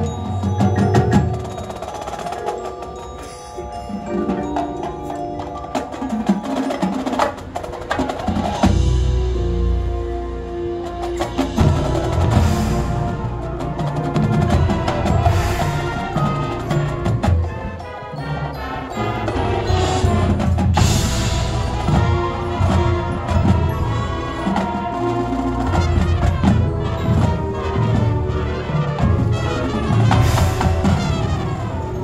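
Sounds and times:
marching band playing: 0.0s - 32.0s.

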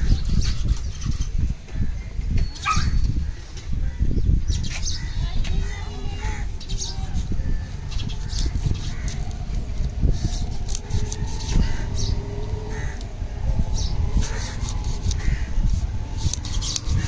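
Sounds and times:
steady low rumble: 0.0s - 17.0s
bird calls: 1.9s - 15.5s.

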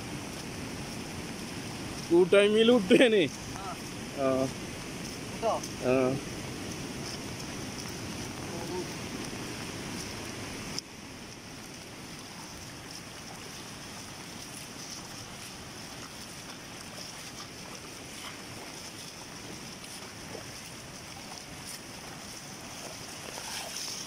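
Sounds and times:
floodwater flowing: 0.0s - 24.0s
heavy rain: 0.0s - 24.0s.

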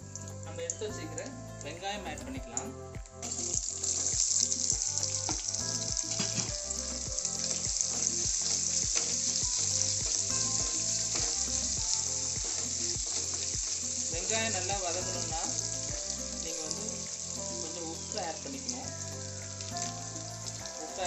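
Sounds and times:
onions sizzling in hot oil: 3.3s - 21.0s
spatula stirring in a pan: 3.6s - 16.2s.

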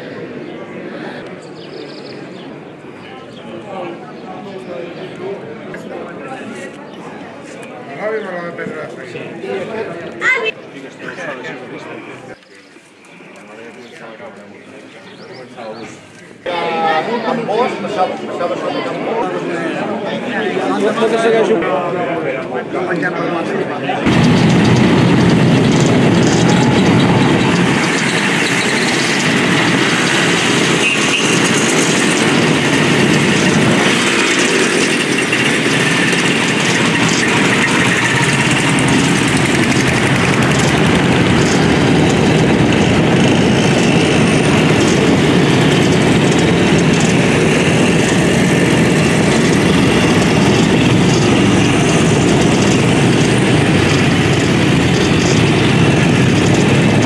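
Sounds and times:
motorcycle engines passing: 24.1s - 57.0s.

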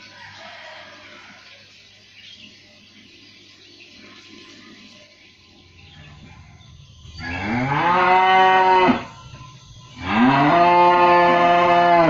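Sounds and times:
cow mooing: 7.2s - 9.1s, 10.0s - 12.0s.

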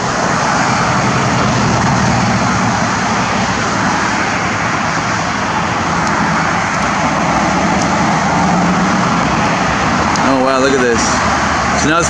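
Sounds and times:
steady rushing noise: 0.0s - 12.0s.

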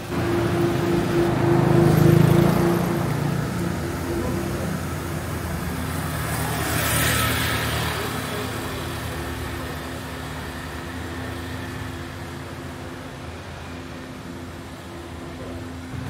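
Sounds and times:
steady traffic hum: 0.0s - 16.0s
vehicle passing close by: 0.1s - 8.6s.

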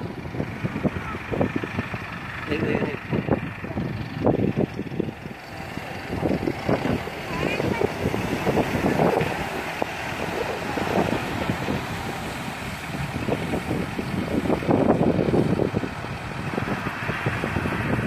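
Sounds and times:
wind buffeting microphone: 0.0s - 18.0s
surf breaking on beach: 6.0s - 18.0s.

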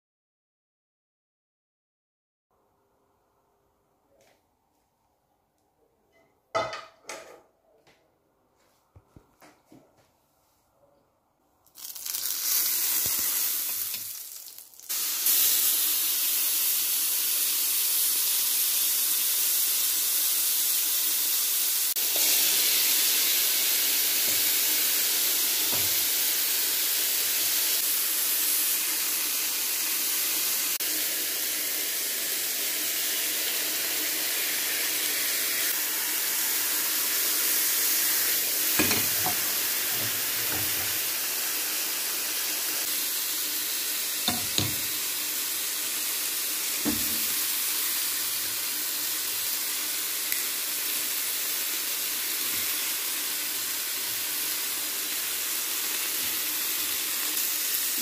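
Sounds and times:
meat sizzling in a grill pan: 11.8s - 58.0s.

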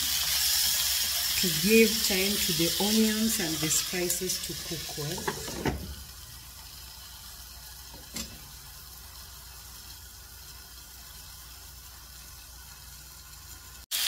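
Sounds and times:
muffled frying sizzle: 0.0s - 14.0s.

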